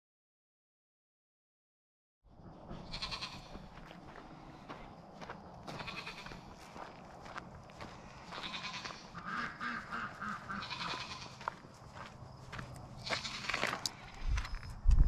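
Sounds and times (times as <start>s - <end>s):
footsteps on grass: 2.7s - 15.0s
goats bleating: 2.8s - 3.8s, 5.7s - 6.5s, 8.2s - 11.6s, 13.0s - 13.8s.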